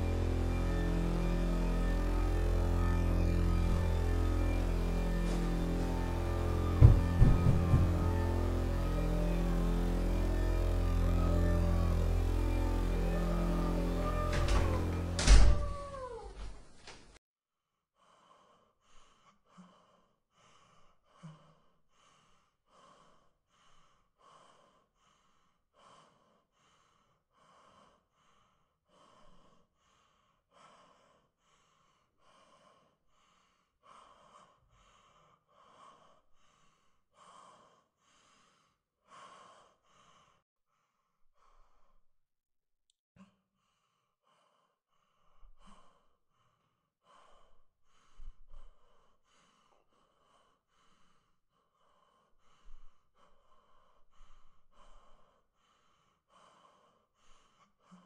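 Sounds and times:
woman breathing quickly: 0:17.9 - 0:42.0, 0:43.3 - 0:58.0.

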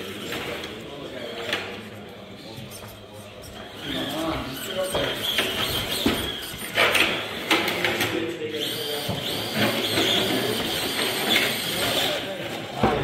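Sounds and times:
small electric motor whining: 0:02.7 - 0:07.7, 0:08.5 - 0:12.4.

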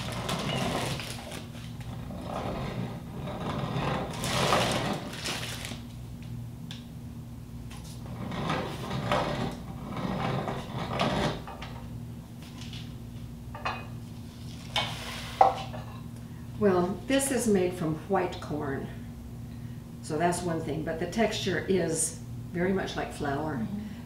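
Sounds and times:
hand-cranked grain mill grinding: 0:00.0 - 0:05.6, 0:08.0 - 0:11.5.

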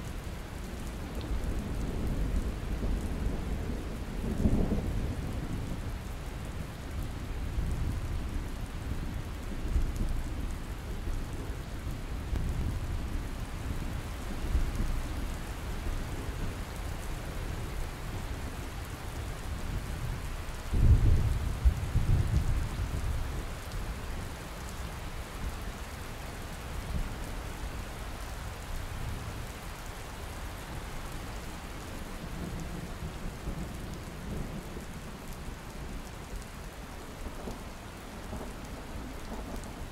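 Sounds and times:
steady rain: 0:00.0 - 0:39.9
low rolling thunder: 0:19.8 - 0:23.1.

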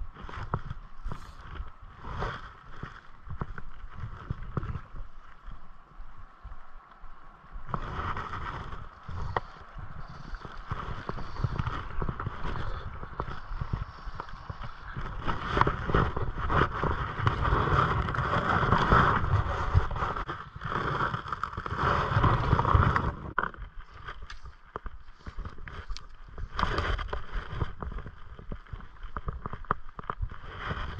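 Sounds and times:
wind buffeting microphone: 0:00.0 - 0:23.4
stream running and gurgling: 0:00.0 - 0:30.9.

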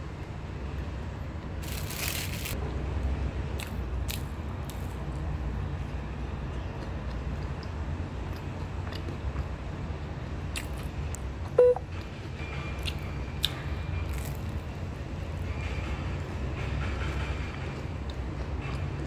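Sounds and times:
short electronic beep: 0:11.6 - 0:11.9.

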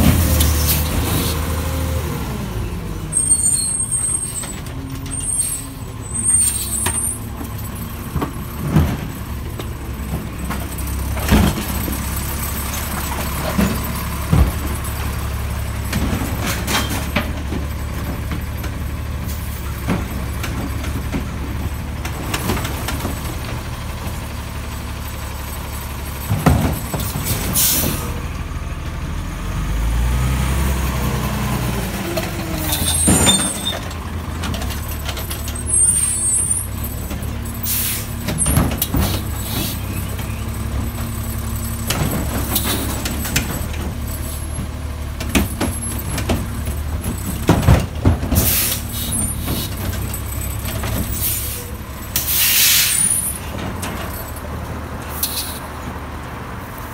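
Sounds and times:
garbage truck diesel engine: 0:00.0 - 0:56.9
air brake hisses: 0:51.2 - 0:53.2.

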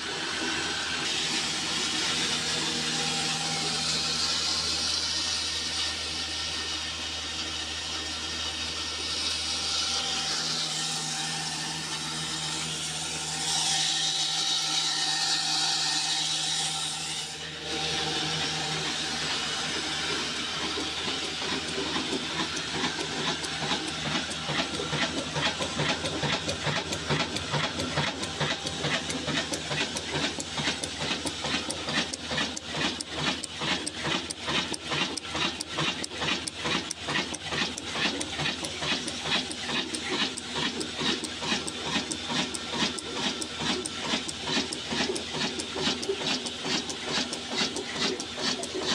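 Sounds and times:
hissing mechanical clatter: 0:18.8 - 0:48.9.

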